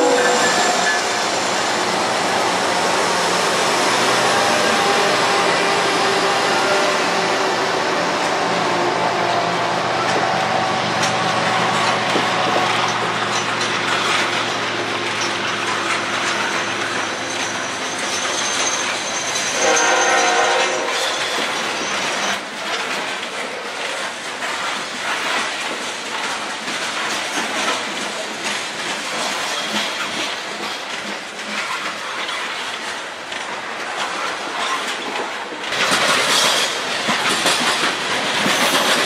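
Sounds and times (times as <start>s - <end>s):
train horn blast: 0.0s - 1.5s, 19.6s - 21.0s
train wheels on rail: 0.0s - 39.0s.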